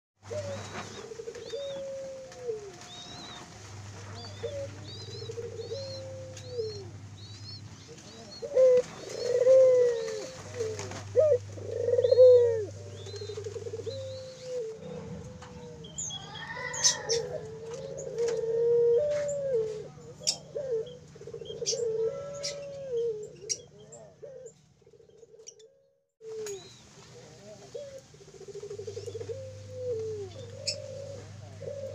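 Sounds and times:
doves cooing: 0:00.2 - 0:31.9.

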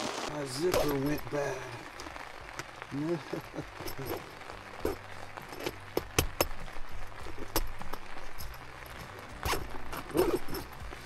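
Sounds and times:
zipper clicks: 0:09.4 - 0:11.0
zipper zipping rasp: 0:09.4 - 0:11.0.

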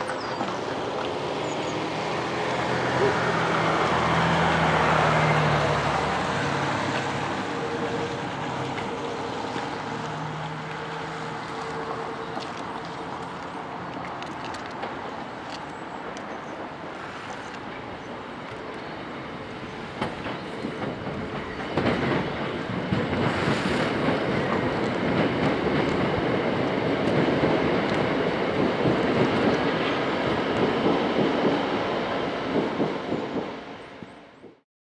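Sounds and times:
train wheels clicking over rail joints: 0:17.6 - 0:34.6.

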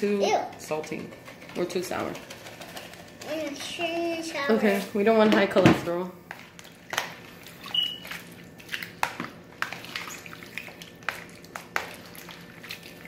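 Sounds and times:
hand mixing wet food: 0:00.5 - 0:05.2, 0:06.2 - 0:13.0
brief high squeak: 0:07.6 - 0:08.0.

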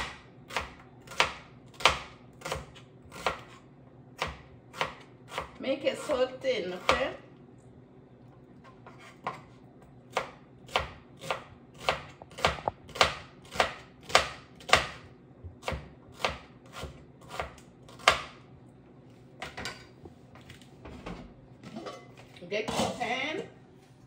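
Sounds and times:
knife chopping on cutting board: 0:00.0 - 0:03.6, 0:04.2 - 0:06.2, 0:10.1 - 0:15.0, 0:15.6 - 0:18.4.

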